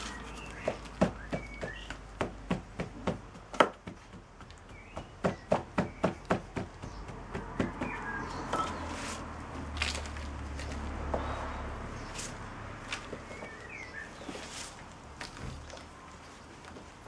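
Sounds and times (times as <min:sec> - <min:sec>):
birds chirping faintly: 0:00.0 - 0:17.0.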